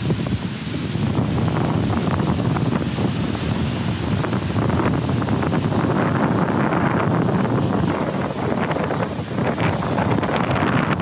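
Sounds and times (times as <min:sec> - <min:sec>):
ocean surf breaking: 0:00.0 - 0:11.0
wind buffeting microphone: 0:00.0 - 0:11.0.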